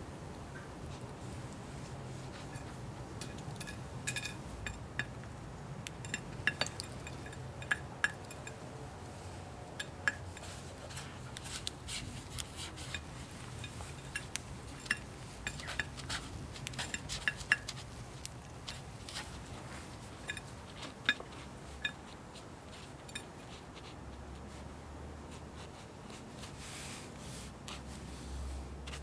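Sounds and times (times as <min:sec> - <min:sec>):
beak tapping on china plate: 0:05.8 - 0:08.6.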